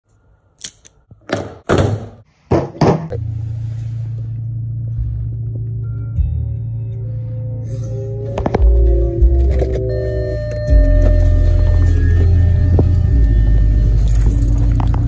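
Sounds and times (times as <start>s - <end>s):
low hum inside car cabin: 3.1s - 15.0s.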